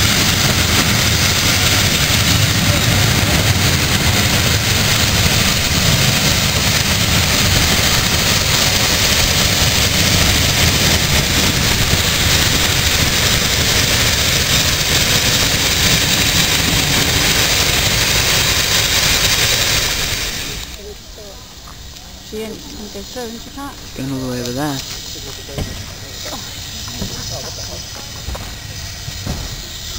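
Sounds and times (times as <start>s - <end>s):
train wheels on rails: 0.0s - 29.9s.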